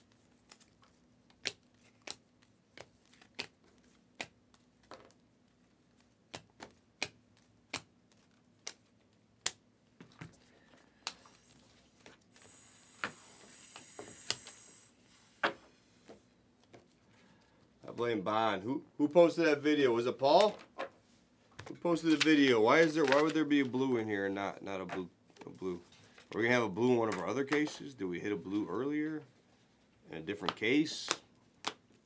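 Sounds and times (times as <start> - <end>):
cards flipping with sharp clicks: 0.0 - 5.2, 5.9 - 14.8, 21.6 - 23.6
steady hiss: 12.3 - 16.0.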